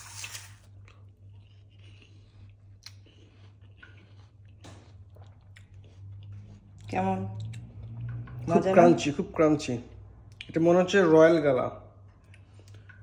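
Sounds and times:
chewing crunches and clicks: 0:00.3 - 0:08.5, 0:10.3 - 0:10.6, 0:12.1 - 0:13.0.

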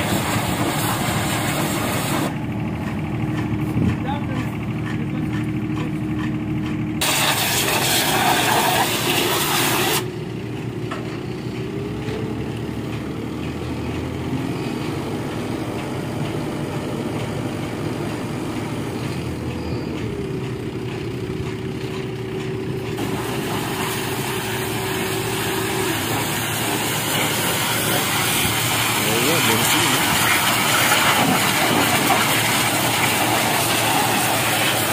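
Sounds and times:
water jet hissing against metal: 0:00.0 - 0:02.4, 0:07.0 - 0:10.1, 0:23.0 - 0:34.9
pressure washer motor hum: 0:00.0 - 0:34.9.

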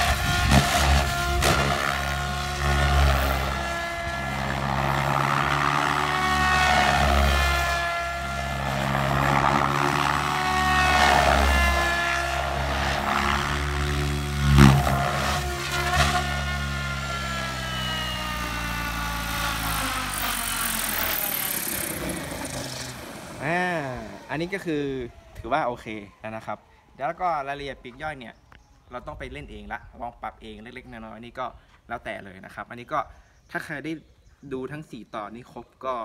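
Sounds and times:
rotor wash rumble: 0:00.0 - 0:17.1, 0:20.8 - 0:25.2
rc helicopter motor whine: 0:00.0 - 0:26.7.

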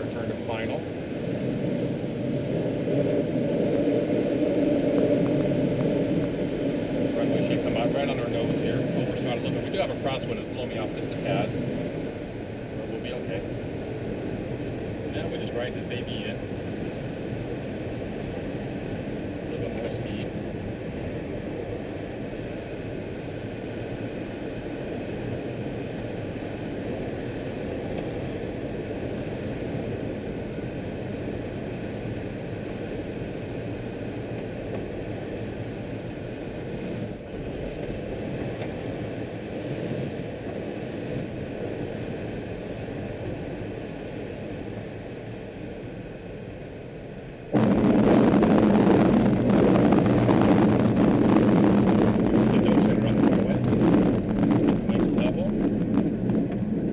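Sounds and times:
wheel rumbling on runway: 0:00.0 - 0:46.1, 0:47.4 - 0:56.9
air rushing around cockpit: 0:00.0 - 0:56.9.

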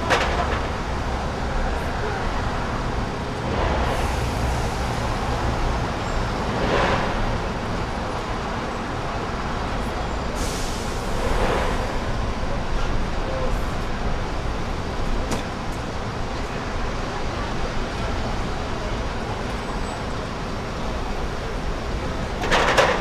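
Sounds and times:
low rumble of engines: 0:00.0 - 0:23.0
vehicles passing: 0:00.0 - 0:23.0.

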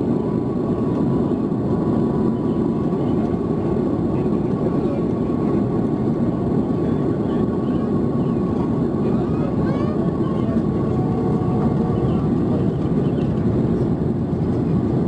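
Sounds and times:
jet engine and airflow rush: 0:00.0 - 0:15.0.

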